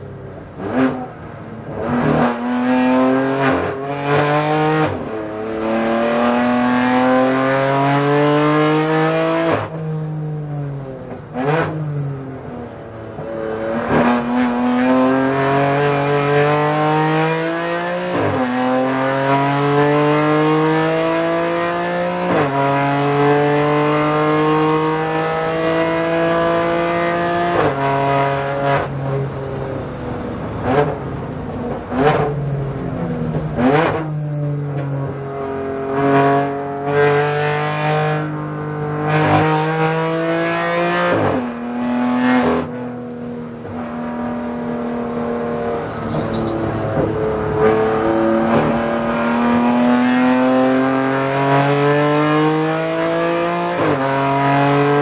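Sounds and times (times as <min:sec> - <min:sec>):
race car engine at full throttle: 0:00.0 - 0:55.0.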